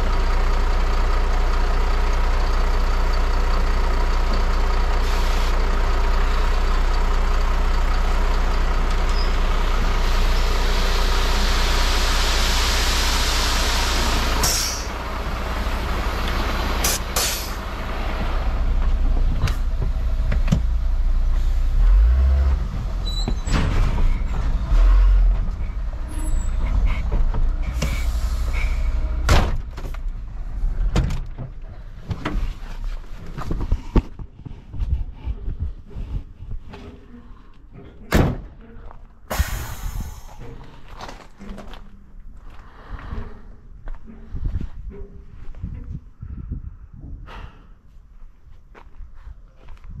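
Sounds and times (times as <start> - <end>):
truck engine running: 0.0 - 46.0
air hiss and burst: 11.4 - 15.0, 16.8 - 17.6, 39.3 - 40.4.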